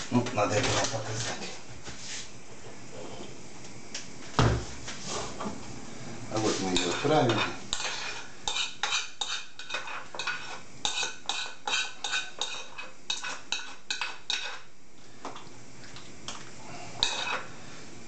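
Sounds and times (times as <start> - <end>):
knife scraping a frying pan: 6.4 - 14.7, 17.0 - 17.5.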